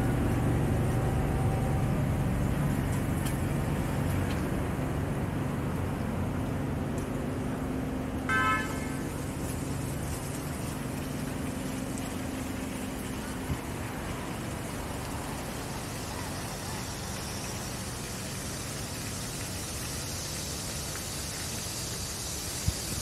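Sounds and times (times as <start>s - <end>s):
low engine hum: 0.0s - 23.0s
traffic noise: 0.0s - 23.0s
steady high hiss: 7.3s - 23.0s.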